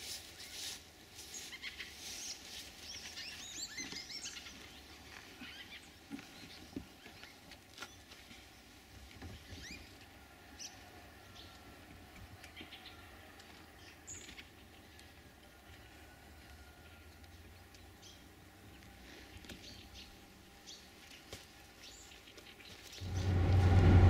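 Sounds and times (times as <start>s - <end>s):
small birds chirping: 1.3s - 10.0s.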